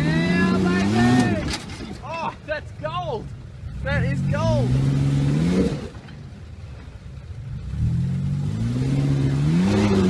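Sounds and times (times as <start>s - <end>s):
suv engine revving hard: 0.0s - 1.4s, 3.7s - 6.0s, 7.5s - 10.0s.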